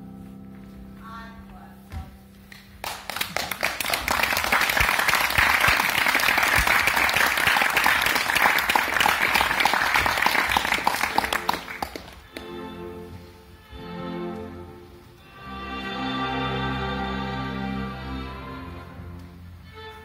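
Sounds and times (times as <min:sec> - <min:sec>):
audience applauding: 0:02.8 - 0:12.4.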